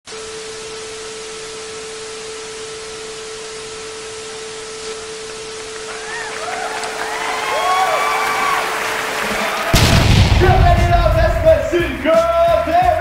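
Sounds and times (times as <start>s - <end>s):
static hiss: 0.1s - 7.0s.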